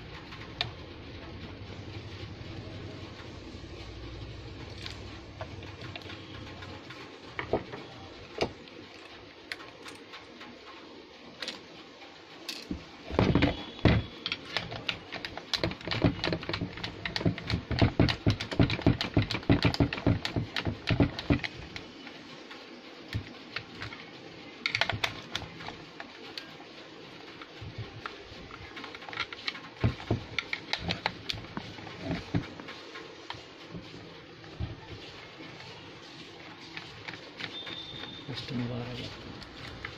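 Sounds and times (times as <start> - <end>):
plastic parts clicking and knocking: 4.6 - 10.6, 11.4 - 11.7, 12.4 - 22.0, 23.1 - 26.5, 27.3 - 35.7, 36.6 - 39.9.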